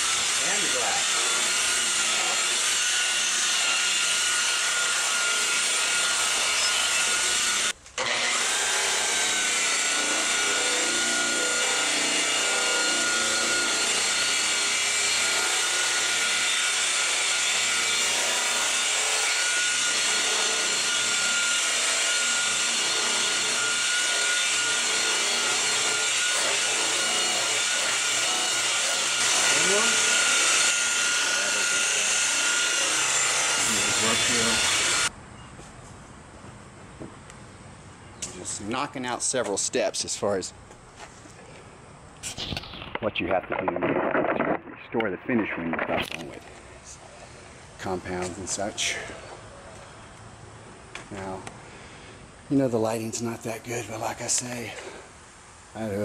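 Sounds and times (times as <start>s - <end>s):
rotary polisher motor whine: 0.0s - 35.1s.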